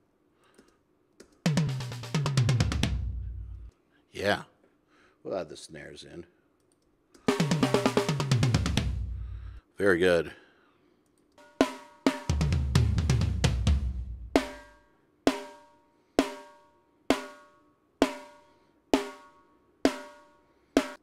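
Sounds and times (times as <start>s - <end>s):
rolling tom fill: 1.5s - 3.7s, 7.3s - 9.6s, 11.4s - 21.0s.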